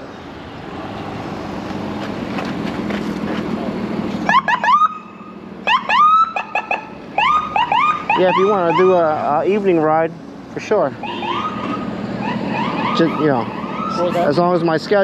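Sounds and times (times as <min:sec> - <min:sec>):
traffic noise: 0:00.0 - 0:15.0
siren whoops: 0:04.3 - 0:09.0, 0:11.0 - 0:14.2.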